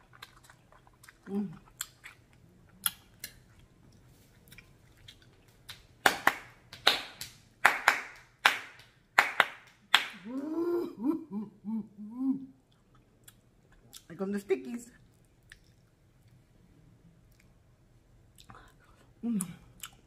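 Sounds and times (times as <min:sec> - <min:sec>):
hand claps: 0:05.7 - 0:10.4.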